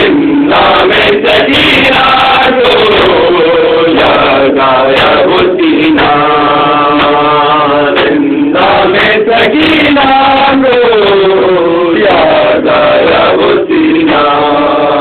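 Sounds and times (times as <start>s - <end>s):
men chanting into a microphone: 0.0s - 15.0s.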